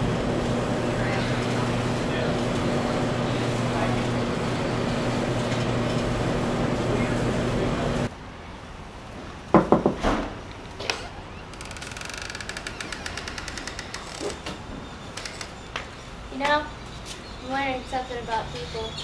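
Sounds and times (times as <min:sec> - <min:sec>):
low hum: 0:00.0 - 0:08.1
sharp knocks and clicks: 0:09.6 - 0:10.3.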